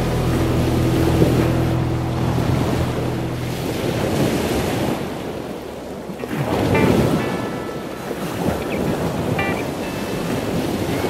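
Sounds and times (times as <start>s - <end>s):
low steady hum: 0.0s - 10.9s
wind buffeting microphone: 0.0s - 11.0s.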